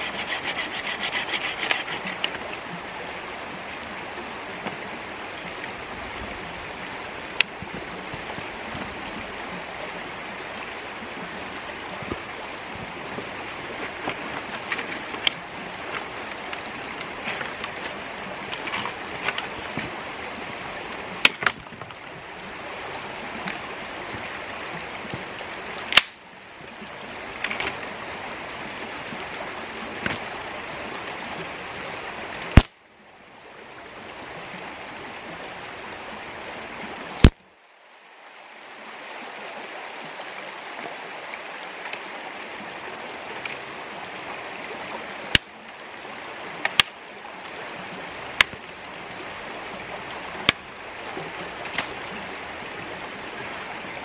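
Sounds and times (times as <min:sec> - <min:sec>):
saw cutting branch: 0:00.0 - 0:02.4, 0:25.9 - 0:26.2
creek water flowing over stones: 0:00.0 - 0:54.0
branches cracking and snapping: 0:25.9 - 0:26.2.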